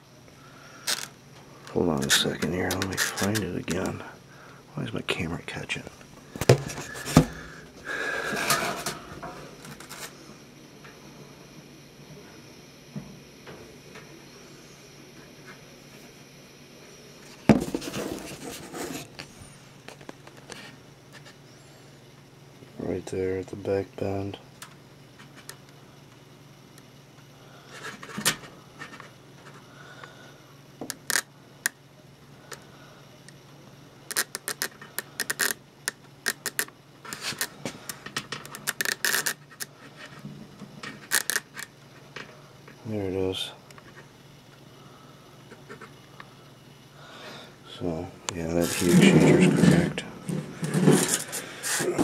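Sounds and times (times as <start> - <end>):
low steady hum: 0.0 - 52.0
probe clicking and scraping metal: 34.1 - 39.7
rustling and clattering: 48.6 - 52.0.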